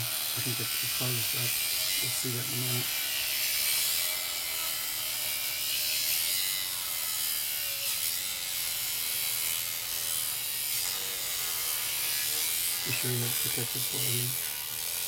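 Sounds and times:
angle grinder cutting steel: 0.0 - 15.0.

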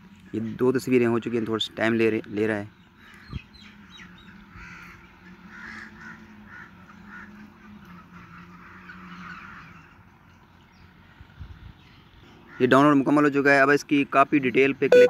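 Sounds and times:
faint bird calls: 2.7 - 12.8.

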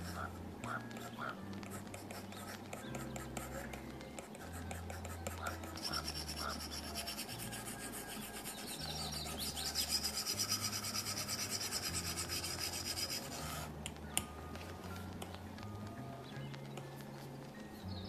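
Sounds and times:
stylus rubbing on glass screen: 0.0 - 13.8.

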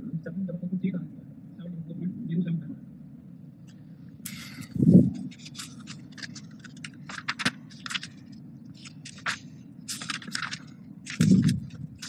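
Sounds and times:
low room hum: 0.0 - 12.0
book pages rustling: 4.3 - 12.0.

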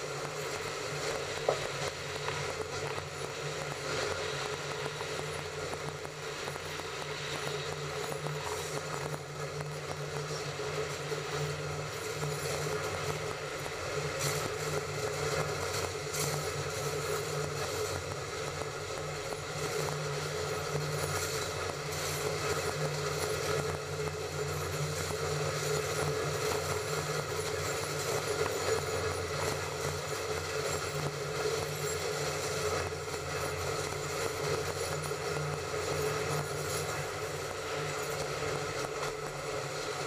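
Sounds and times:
train running on track: 0.0 - 40.0.

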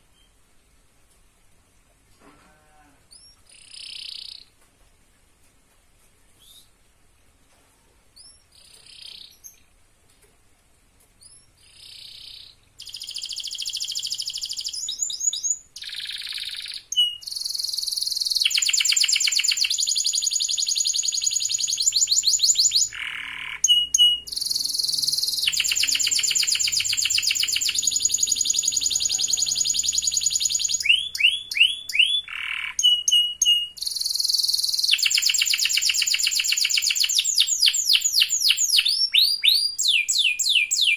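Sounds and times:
canary singing trills: 3.1 - 4.6, 8.2 - 9.6, 11.2 - 40.9.

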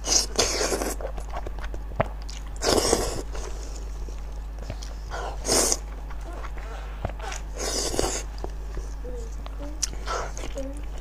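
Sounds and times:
wet chewing: 0.0 - 11.0.

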